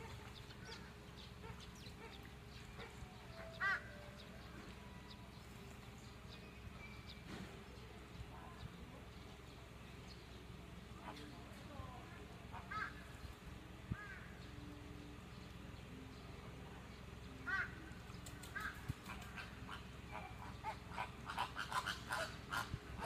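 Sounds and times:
flamingos honking: 0.0s - 4.6s, 17.4s - 23.0s.

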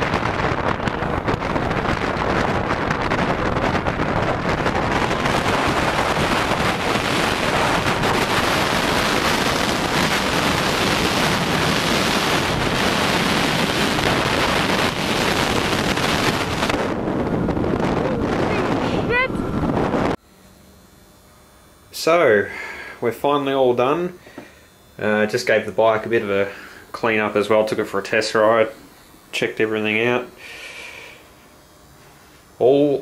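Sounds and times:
wind buffeting microphone: 0.0s - 20.2s.

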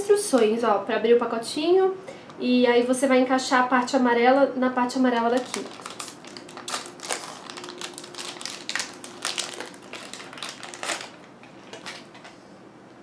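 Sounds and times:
foil wrapper crinkling: 5.2s - 12.2s.

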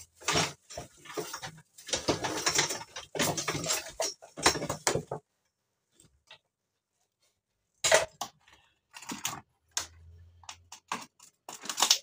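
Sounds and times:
metal clattering and rattling: 0.0s - 5.2s.

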